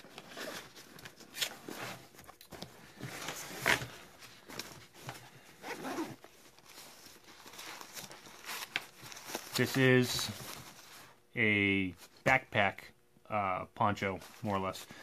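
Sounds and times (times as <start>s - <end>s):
nylon fabric rustling: 0.0s - 11.2s
zipper rasping: 5.6s - 6.2s.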